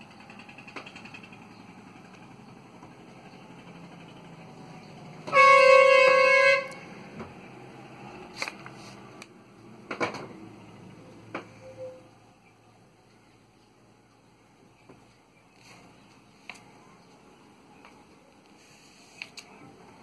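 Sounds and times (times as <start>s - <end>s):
loud horn-like blast: 5.2s - 6.9s.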